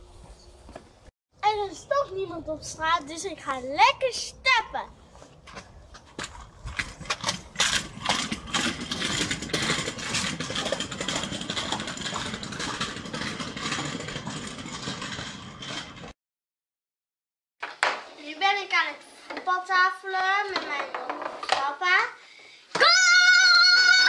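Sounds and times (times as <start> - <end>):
scooter wheels rolling on concrete: 0.7 - 16.2, 17.6 - 22.1, 22.7 - 24.0
sharp clicks of wheels: 5.5 - 16.1.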